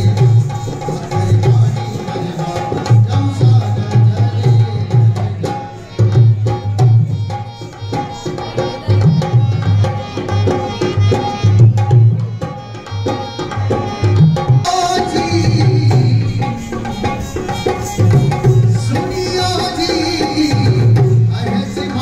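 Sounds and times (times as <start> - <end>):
hand drum rhythm: 0.0 - 22.0
bright melody: 5.6 - 21.9.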